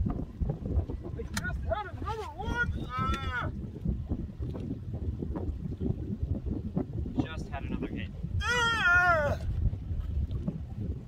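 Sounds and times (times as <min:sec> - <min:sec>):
wind buffeting microphone: 0:00.0 - 0:11.0
man's wordless vocal cry: 0:08.4 - 0:09.5.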